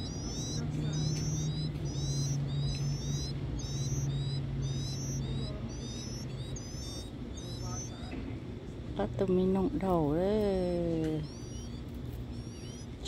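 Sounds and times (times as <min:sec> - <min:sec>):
low hum: 0:00.0 - 0:08.0
nestlings begging calls: 0:00.0 - 0:13.0.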